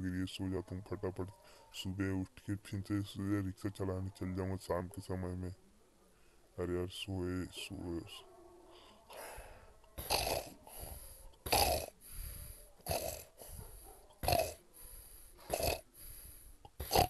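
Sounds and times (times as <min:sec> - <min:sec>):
quiet breaths: 0:00.0 - 0:17.0
man snoring: 0:10.0 - 0:13.6, 0:14.2 - 0:17.0.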